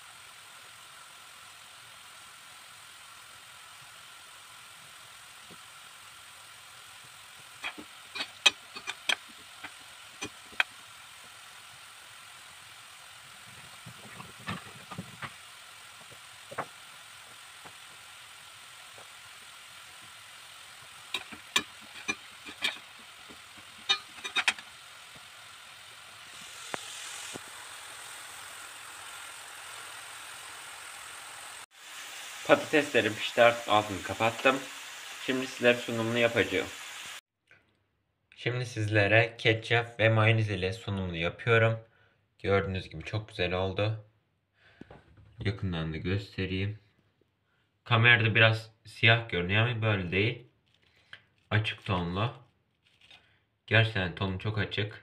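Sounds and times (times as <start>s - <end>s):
oil popping and crackling: 0.0s - 37.2s
oil sizzling: 0.0s - 37.2s.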